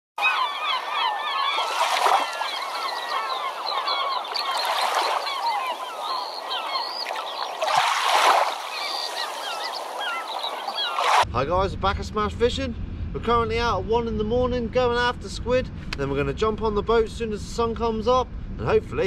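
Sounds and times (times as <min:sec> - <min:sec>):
flock of birds calling: 0:00.2 - 0:11.2.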